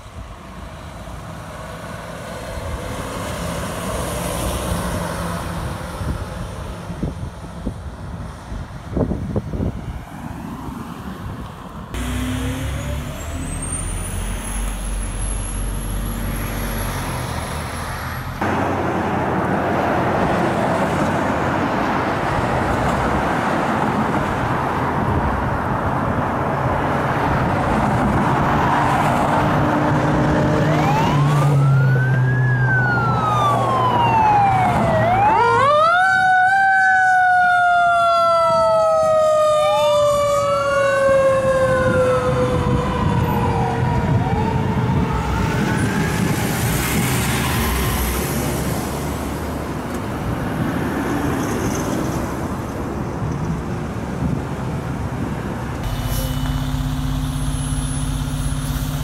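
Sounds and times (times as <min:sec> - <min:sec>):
fire engine driving past: 0:00.0 - 0:59.0
siren wailing: 0:30.0 - 0:46.6.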